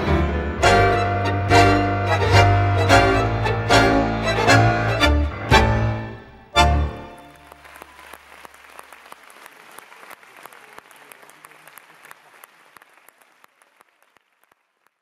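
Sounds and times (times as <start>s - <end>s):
audience applauding: 7.0s - 15.0s.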